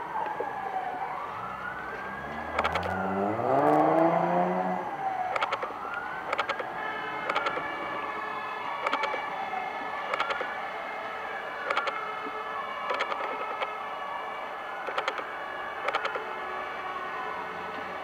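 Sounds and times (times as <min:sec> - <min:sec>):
fire engine siren wailing: 0:00.0 - 0:18.0
car accelerating on wet road: 0:02.1 - 0:05.1
short clicks: 0:02.5 - 0:03.0, 0:05.3 - 0:05.7, 0:06.3 - 0:06.7, 0:07.3 - 0:07.6, 0:08.8 - 0:09.2, 0:10.1 - 0:10.5, 0:11.6 - 0:12.0, 0:15.8 - 0:16.2.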